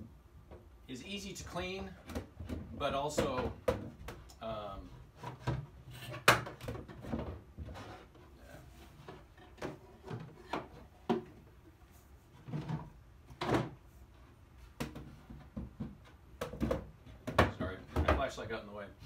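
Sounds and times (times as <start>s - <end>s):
toilet seat knocks and clunks: 14.8s - 18.4s.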